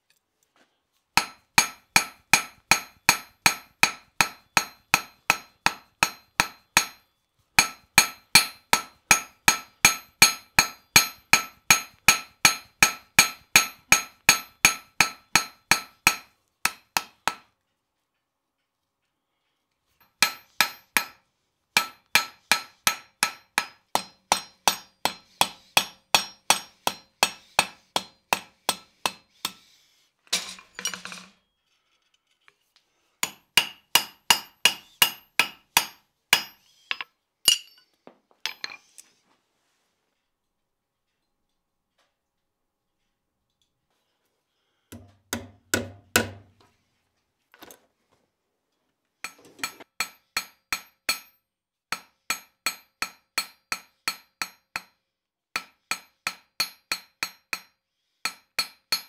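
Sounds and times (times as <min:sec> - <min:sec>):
hammer ringing on anvil: 0:21.8 - 0:29.2, 0:33.2 - 0:37.8.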